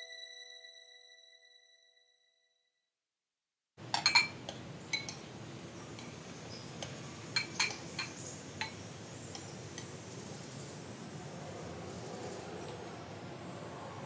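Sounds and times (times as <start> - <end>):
spoons clinking against bowls: 3.8 - 10.0.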